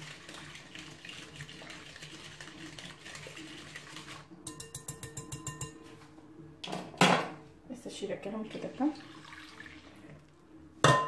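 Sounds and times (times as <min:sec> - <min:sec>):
whisk stirring in metal bowl: 0:00.0 - 0:05.8
whisk tapping container: 0:03.9 - 0:05.9.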